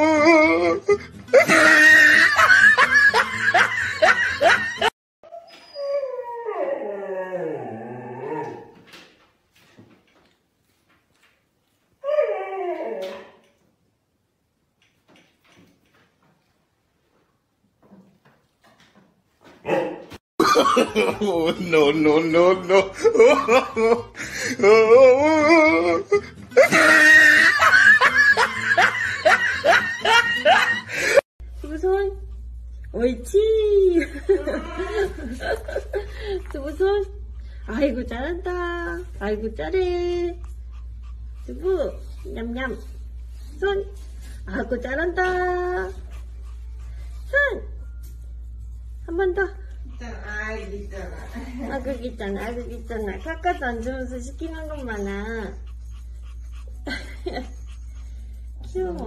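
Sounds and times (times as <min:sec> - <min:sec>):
dog whining: 0:00.0 - 0:02.6, 0:05.2 - 0:08.8, 0:12.0 - 0:13.5
dog howling: 0:05.7 - 0:08.8.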